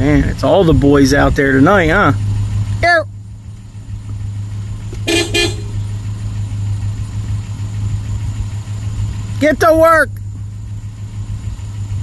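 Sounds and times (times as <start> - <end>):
vehicle engine droning: 0.0 - 12.0
vehicle horn toots: 5.0 - 5.9.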